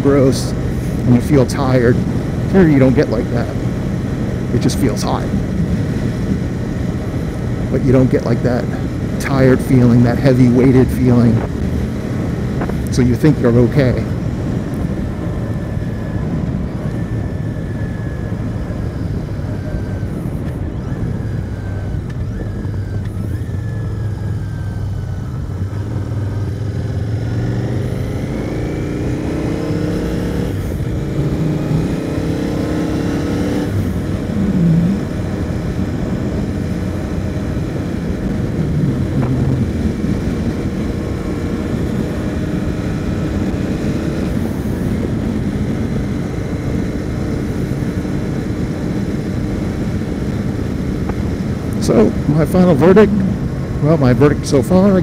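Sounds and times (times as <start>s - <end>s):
motorcycle engine running: 0.0s - 55.0s
wind rushing: 27.2s - 46.2s, 49.4s - 54.2s.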